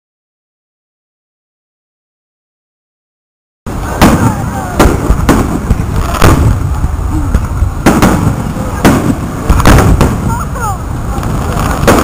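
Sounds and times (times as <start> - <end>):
fireworks bangs: 3.7 - 12.0
low rumble: 3.7 - 12.0.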